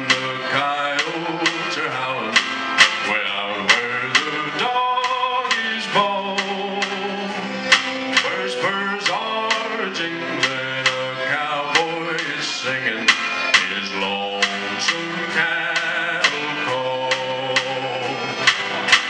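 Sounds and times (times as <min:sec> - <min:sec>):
man singing long notes: 0:00.0 - 0:07.6, 0:08.2 - 0:18.5
steady drum beat: 0:00.0 - 0:19.0
strummed acoustic guitars: 0:00.0 - 0:19.0
upright bass: 0:00.0 - 0:19.0.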